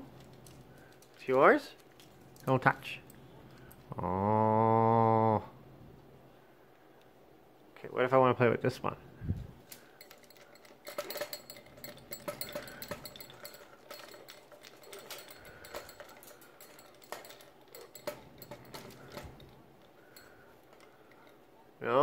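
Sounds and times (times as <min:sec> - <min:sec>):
toys clicking and rattling: 0:00.0 - 0:04.0, 0:09.6 - 0:22.0.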